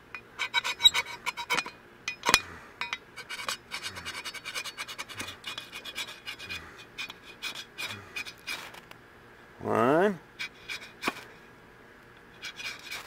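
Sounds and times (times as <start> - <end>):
steel shovel blade scraping: 0.0 - 8.8, 10.4 - 11.3, 12.3 - 13.0.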